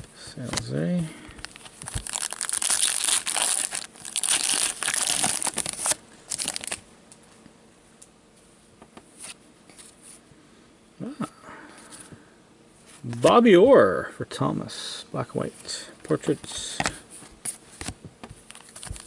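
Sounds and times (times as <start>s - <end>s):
card pack wrapper tearing: 1.4s - 6.8s.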